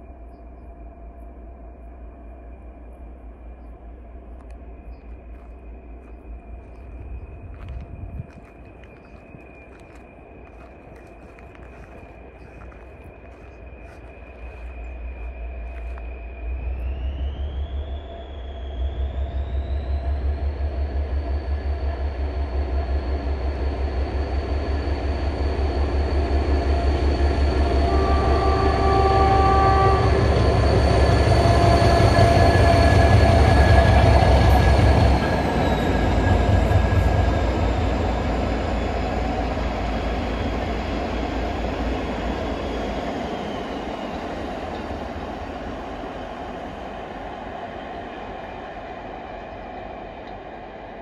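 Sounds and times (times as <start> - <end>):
diesel locomotive engine pulsing: 0.0 - 51.0
turbocharger whine: 13.3 - 46.4.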